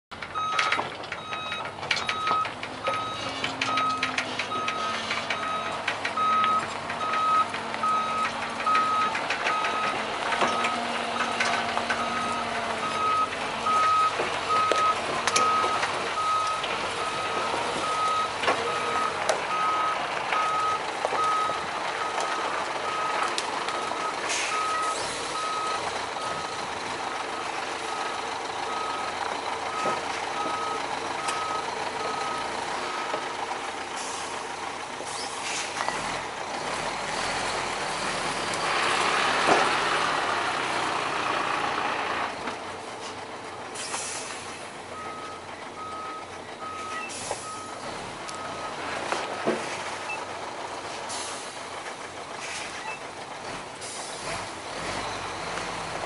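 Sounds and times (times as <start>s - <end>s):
sharp knocks and clanks: 0.1s - 12.8s
diesel engine running and revving: 0.1s - 56.0s
truck reversing alarm beeping: 0.2s - 42.6s, 43.5s - 50.4s, 51.1s - 56.0s.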